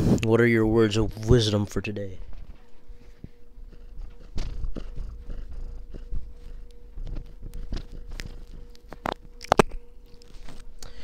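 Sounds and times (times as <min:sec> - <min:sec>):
cat purring: 0:02.3 - 0:10.6.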